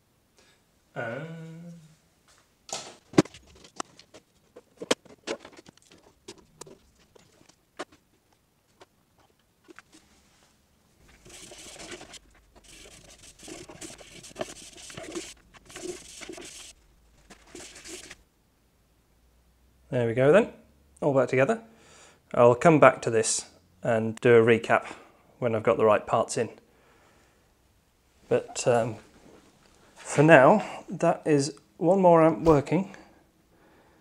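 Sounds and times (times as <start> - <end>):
cloth rubbing on wood case: 9.8 - 18.2.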